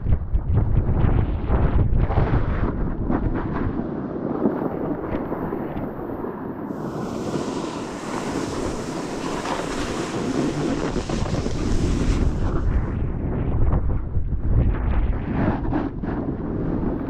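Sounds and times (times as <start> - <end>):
wind buffeting microphone: 0.0 - 17.0
high hiss: 6.7 - 12.7.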